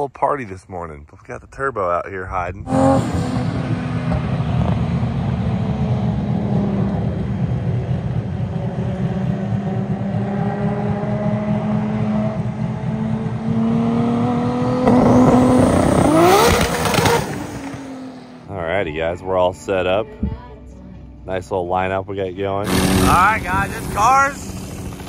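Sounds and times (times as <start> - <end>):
car engine and exhaust: 0.0 - 25.0
car engine revving up: 2.6 - 18.5, 22.6 - 24.6.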